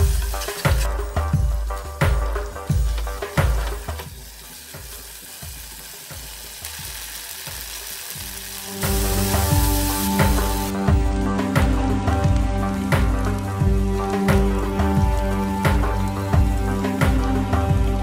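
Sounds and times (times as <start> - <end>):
background music: 0.0 - 18.0
food sizzling in oil: 0.0 - 18.0.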